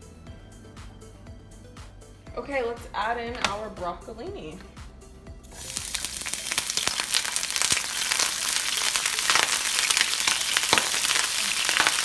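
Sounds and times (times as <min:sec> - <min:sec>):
vegetables sizzling in oil: 0:05.5 - 0:12.0
oil spatter popping: 0:05.6 - 0:12.0.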